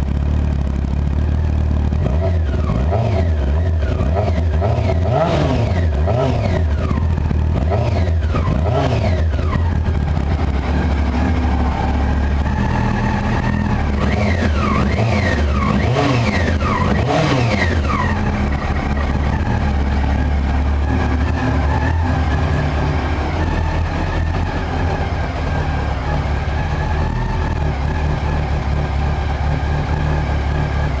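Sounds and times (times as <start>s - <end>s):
motorcycle engine revving and idling: 0.0s - 31.0s.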